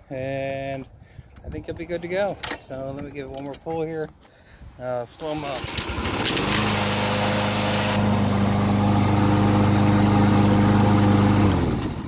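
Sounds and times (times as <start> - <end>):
lawn mower engine running: 5.2 - 12.0.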